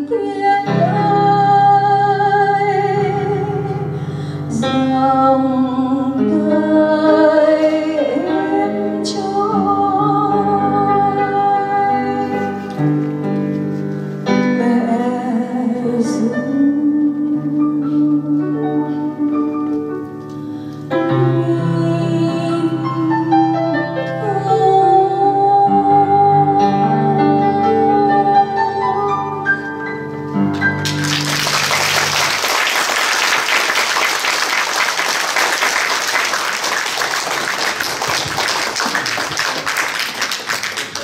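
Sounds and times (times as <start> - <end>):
woman singing: 0.0 - 3.9, 4.5 - 12.6, 14.4 - 19.8, 21.1 - 29.3
audience applause: 30.6 - 41.0.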